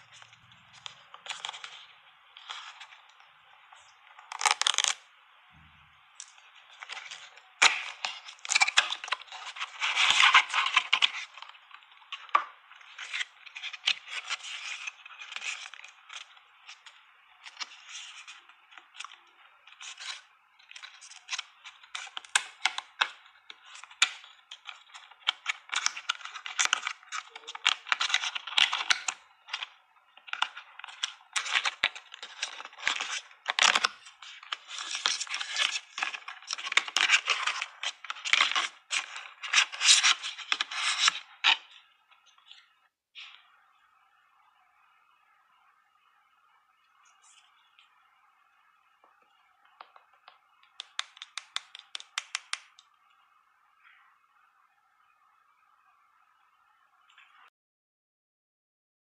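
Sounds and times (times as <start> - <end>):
paper packaging rustling: 4.1 - 5.0, 6.2 - 23.0, 23.6 - 42.6.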